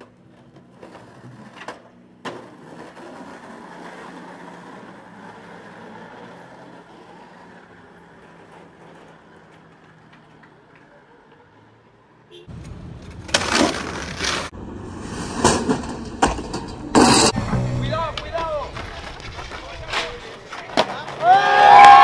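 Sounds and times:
skateboard clacks: 0.0s - 7.6s, 15.4s - 22.0s
skateboard wheels rolling on asphalt: 0.0s - 22.0s.

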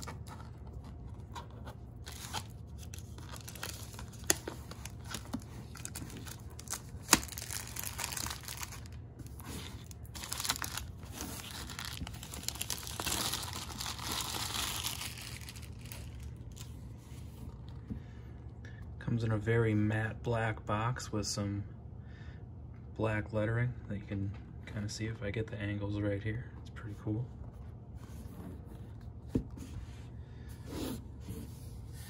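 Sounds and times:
plastic shrink wrap crinkling: 0.0s - 16.7s.

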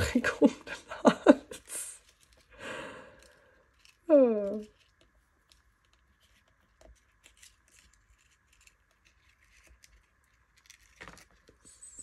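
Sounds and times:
hands handling paper card: 3.2s - 12.0s.

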